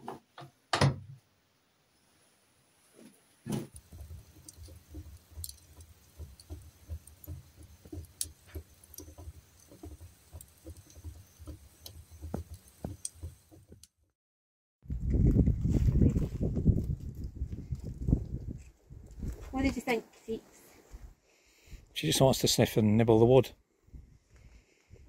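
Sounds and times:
wood fire crackling in stove: 3.5 - 14.0, 16.4 - 20.0.

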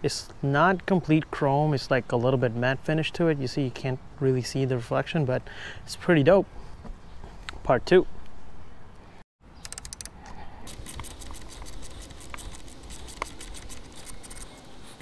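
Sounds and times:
ratchet wrench clicking: 9.6 - 14.5.

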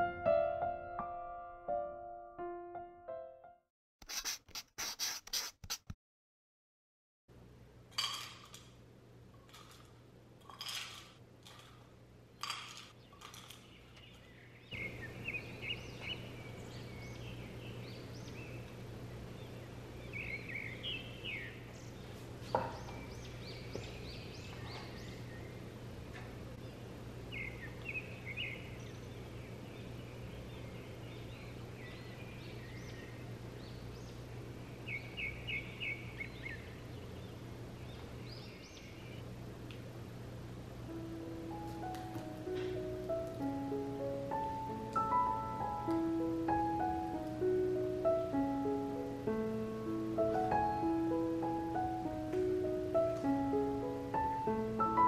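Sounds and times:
steady low hum: 11.2 - 54.8
birds chirping: 12.4 - 39.4.

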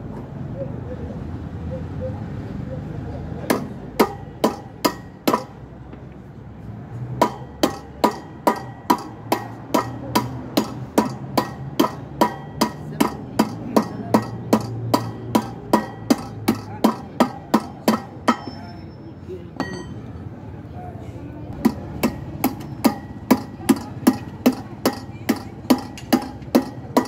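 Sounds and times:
hammer striking metal rod: 3.5 - 5.7, 7.2 - 18.8, 19.6 - 20.1, 21.6 - 27.0.

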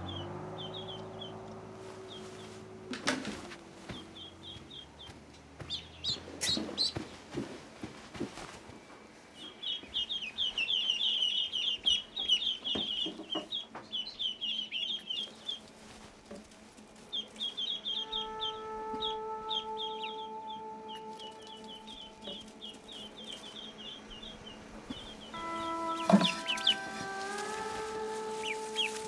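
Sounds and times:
ducklings peeping: 0.0 - 29.0
steady held tone: 17.8 - 29.0
knocks: 25.4 - 27.6.

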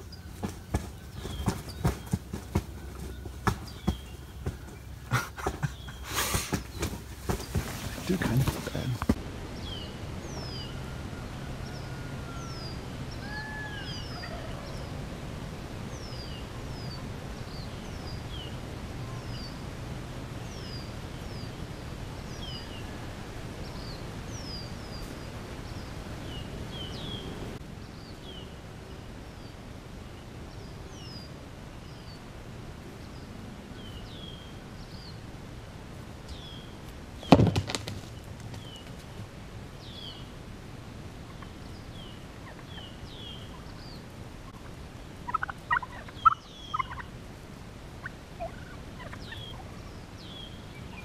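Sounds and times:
small birds chirping: 0.0 - 10.9, 23.6 - 32.3, 36.3 - 40.4, 41.2 - 47.2, 48.0 - 51.0
bird flapping wings: 0.3 - 9.2, 37.2 - 39.3.

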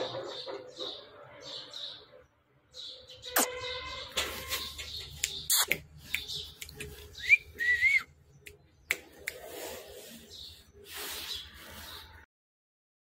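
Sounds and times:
sharp clicks and taps: 4.8 - 7.0
person whistling: 7.2 - 8.1.

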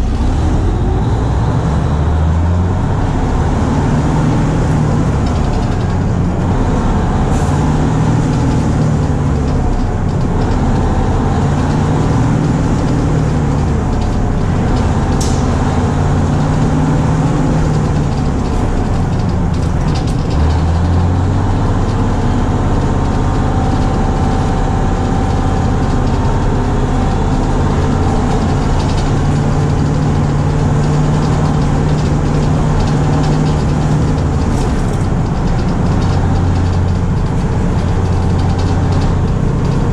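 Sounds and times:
bus engine droning: 0.0 - 39.9.

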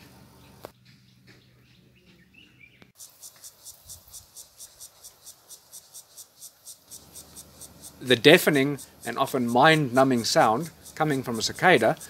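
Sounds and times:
cicada pulsing buzz: 3.0 - 12.0.

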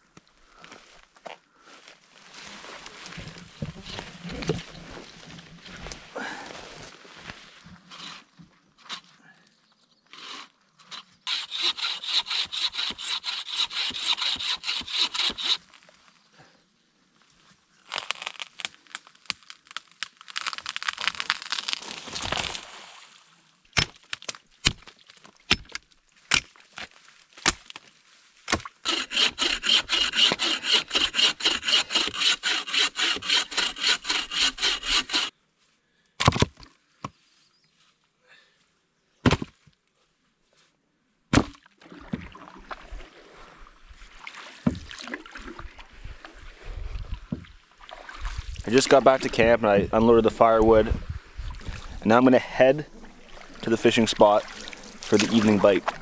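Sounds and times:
saw cutting wood: 10.2 - 15.6, 28.8 - 35.3.

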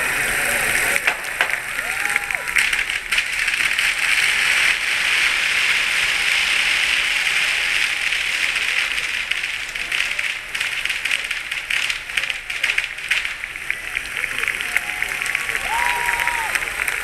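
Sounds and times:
firecrackers crackling: 0.0 - 17.0.

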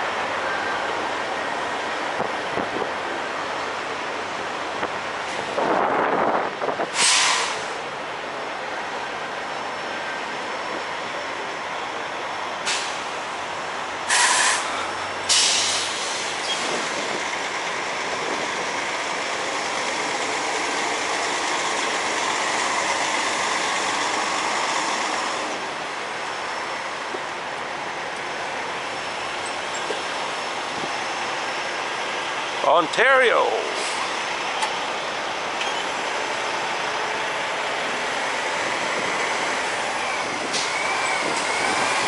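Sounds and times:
semi trucks running: 0.0 - 42.0
air brake hisses: 6.9 - 7.8, 12.7 - 13.1, 14.1 - 16.8.

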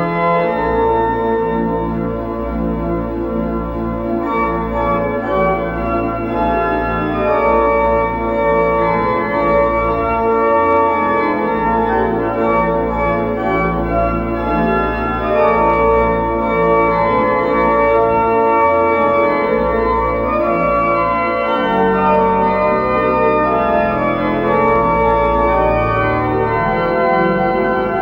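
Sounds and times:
pipe organ chords: 0.0 - 28.0.

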